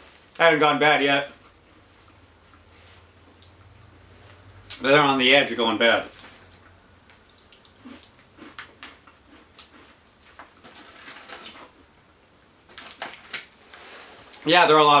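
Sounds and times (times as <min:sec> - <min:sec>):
plastic pouch crinkling: 0:10.3 - 0:11.7, 0:12.7 - 0:13.6.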